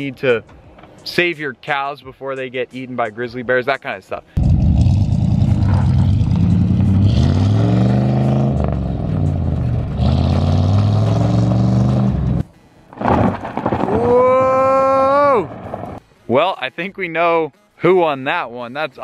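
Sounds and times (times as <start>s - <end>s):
truck engine revving: 4.4s - 12.4s.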